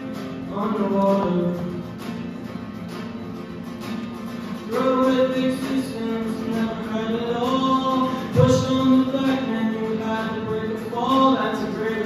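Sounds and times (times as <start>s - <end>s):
acoustic guitar strumming: 0.0s - 12.0s
man singing: 0.5s - 1.8s, 4.7s - 12.0s.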